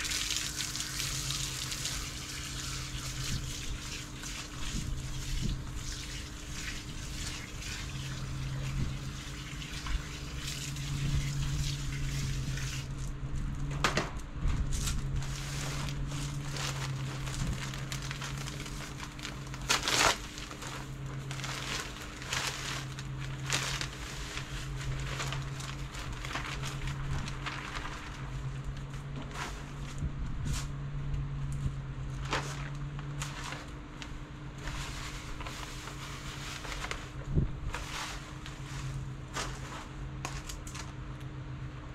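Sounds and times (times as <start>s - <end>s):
hose water spraying: 0.0s - 12.9s
soil pouring: 0.0s - 13.0s
steady hum: 0.0s - 41.9s
plastic bag crinkling: 14.7s - 30.0s, 32.1s - 41.0s.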